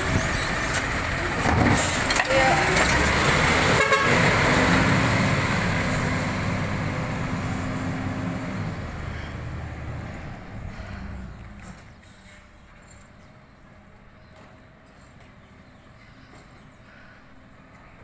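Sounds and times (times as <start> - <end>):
diesel truck engine pulling away: 0.0 - 14.0.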